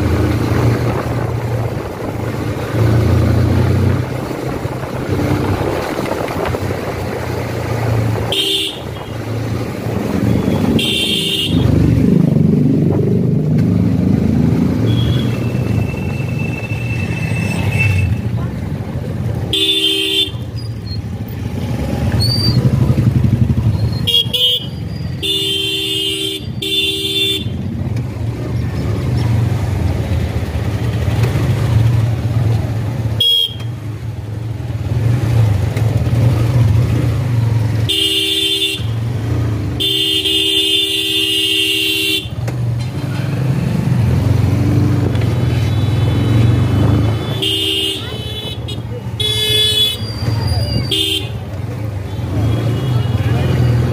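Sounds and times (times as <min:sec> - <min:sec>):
vehicle horns honking: 0:08.2 - 0:09.2, 0:10.2 - 0:11.8, 0:14.8 - 0:18.3, 0:19.4 - 0:20.6, 0:24.0 - 0:27.6, 0:33.2 - 0:33.8, 0:37.8 - 0:39.2, 0:39.8 - 0:42.4, 0:45.5 - 0:53.6
motorcycle engine running: 0:18.1 - 0:49.7.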